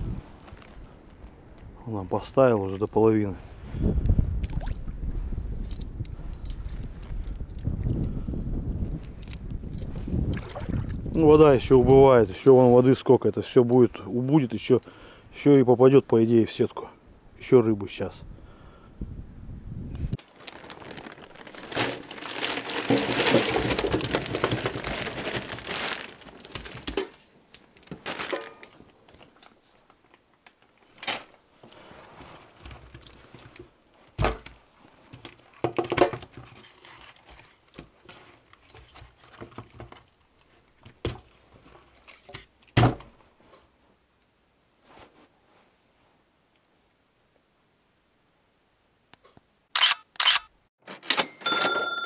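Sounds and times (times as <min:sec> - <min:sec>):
close rustling and crinkling: 0:00.0 - 0:01.7, 0:20.0 - 0:44.0, 0:44.8 - 0:46.2.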